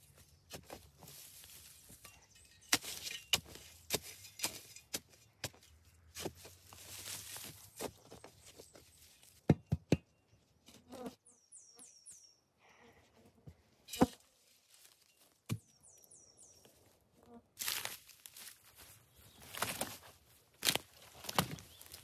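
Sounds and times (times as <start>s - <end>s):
bird chirping: 11.2s - 12.5s, 15.6s - 16.8s
rustling and scraping: 13.7s - 15.4s.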